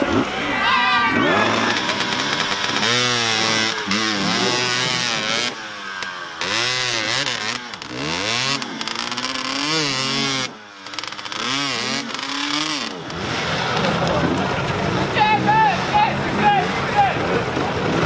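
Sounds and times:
dirt bike engine revving: 0:00.0 - 0:18.0
wheel churning through mud: 0:01.2 - 0:15.0.

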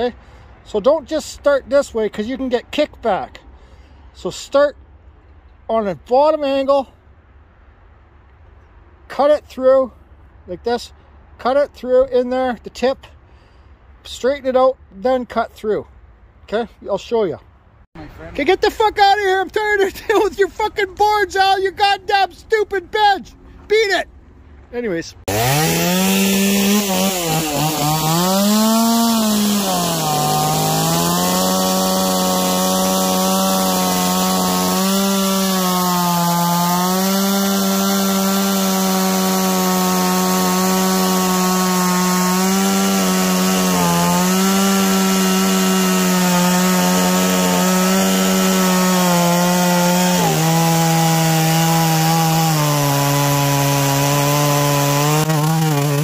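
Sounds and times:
chainsaw cutting log: 0:25.2 - 0:56.0.

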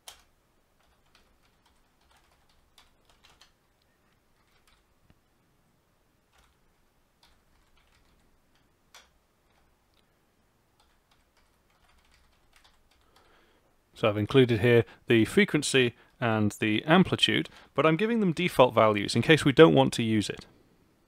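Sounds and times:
keyboard typing: 0:00.0 - 0:03.6, 0:04.3 - 0:04.9, 0:06.3 - 0:06.6, 0:07.2 - 0:10.1, 0:10.7 - 0:13.3.

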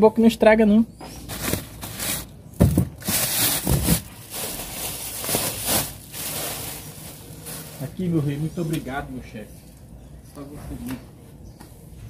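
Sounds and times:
plastic bag rustling: 0:01.2 - 0:08.5.

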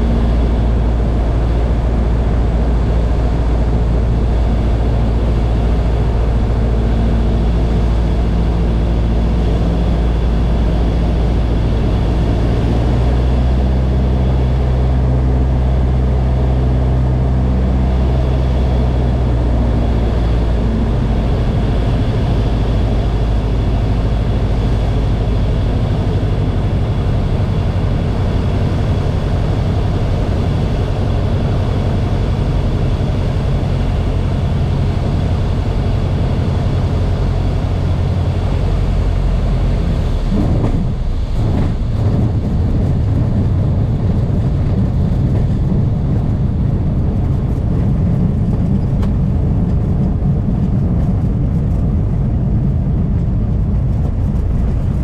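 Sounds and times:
airplane engine and propeller drone: 0:00.0 - 0:55.0.

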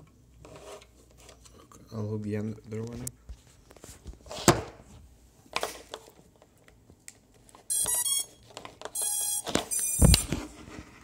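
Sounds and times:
drone motor beeps: 0:07.7 - 0:08.3, 0:09.0 - 0:10.2.

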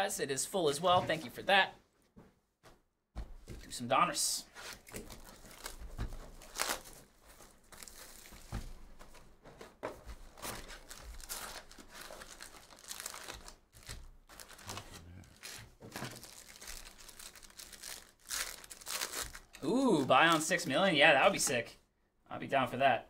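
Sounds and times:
shrink wrap crinkling and tearing: 0:04.7 - 0:08.6, 0:10.3 - 0:20.7
foil packs rustling: 0:04.7 - 0:08.9, 0:10.2 - 0:20.6.

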